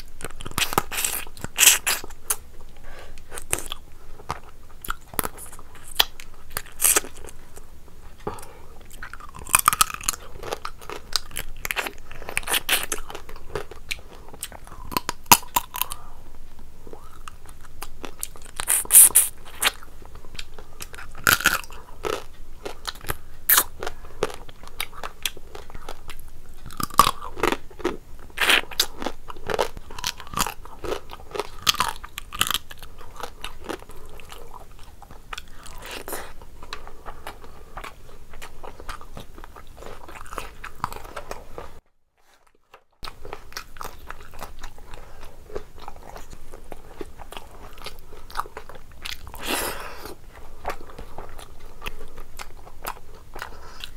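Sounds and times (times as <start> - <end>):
person chewing and crunching food: 0.0 - 53.9
wet mouth clicks: 18.3 - 21.2.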